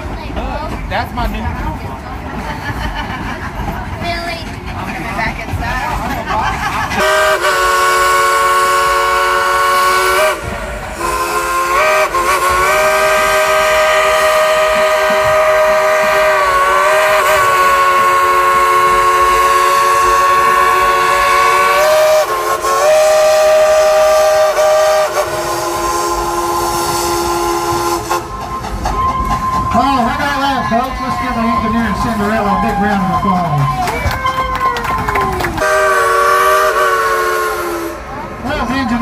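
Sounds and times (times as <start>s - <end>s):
train running noise: 0.0s - 39.0s
steam locomotive chime whistle: 7.0s - 30.2s, 35.6s - 38.0s.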